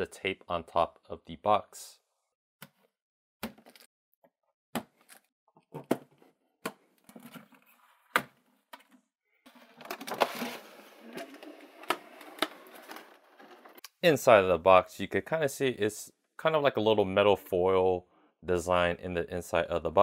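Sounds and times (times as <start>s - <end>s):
plastic tray scraping out of box: 9.5s - 13.8s.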